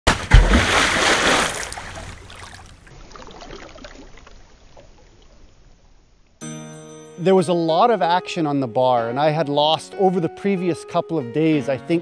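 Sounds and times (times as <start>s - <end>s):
object splashing into water: 0.1s - 5.2s
bubbles gurgling: 0.3s - 5.6s.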